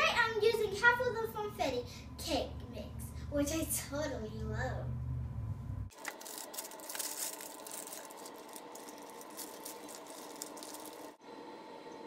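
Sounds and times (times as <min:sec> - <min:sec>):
dry mix pouring into a bowl: 0:05.9 - 0:11.2
plastic bag crinkling: 0:05.9 - 0:11.2.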